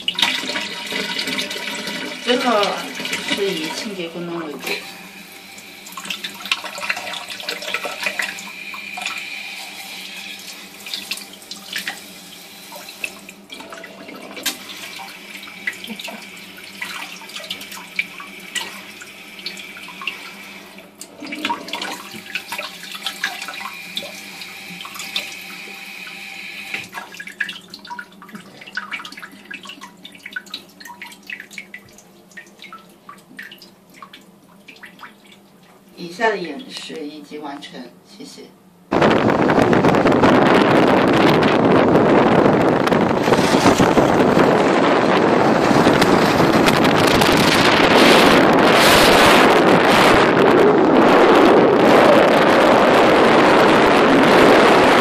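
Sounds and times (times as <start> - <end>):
water jet spraying into a glass: 42.9 - 50.2.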